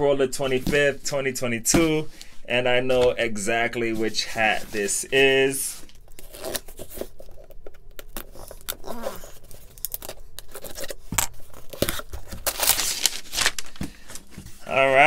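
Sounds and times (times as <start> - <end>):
cardboard flaps scraping and crinkling: 3.8 - 15.0
packing tape ripping: 6.1 - 13.8.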